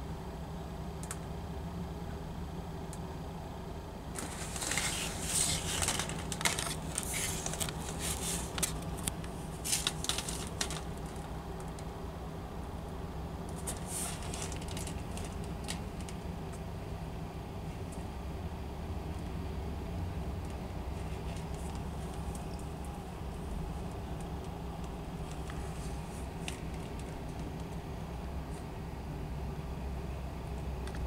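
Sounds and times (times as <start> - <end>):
distant garbage truck engine: 0.0 - 30.9
crackling and rattling: 4.1 - 12.0, 13.4 - 16.7, 20.4 - 28.7.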